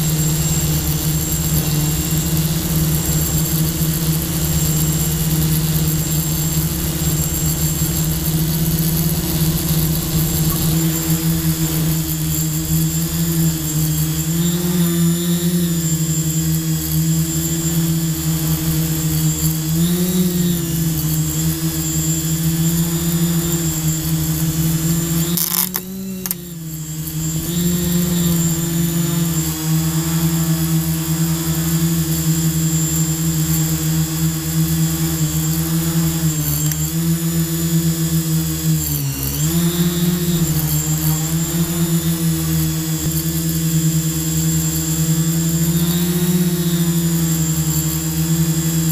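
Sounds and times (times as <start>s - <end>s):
quadcopter propellers humming: 0.0s - 48.9s
click: 25.3s - 26.5s, 36.6s - 36.8s.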